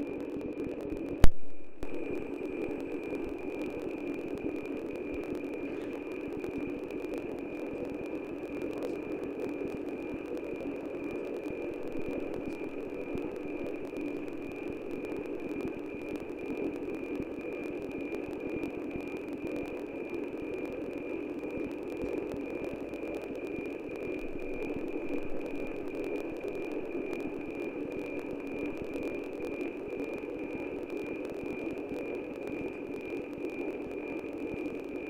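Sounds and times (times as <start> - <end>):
loud static hiss: 0.0 - 35.0
pulsing high radio tone: 0.0 - 35.0.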